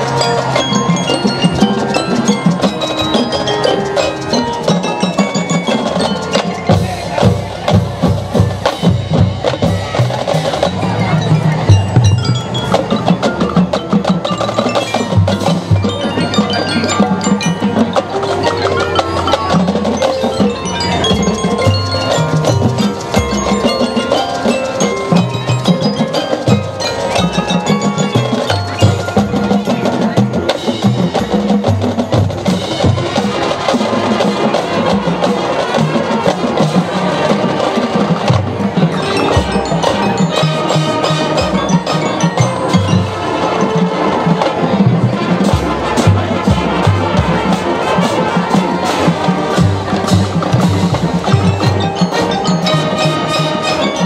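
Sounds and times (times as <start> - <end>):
drumline strikes: 0.0 - 54.0
mallet instruments ringing: 0.0 - 54.0.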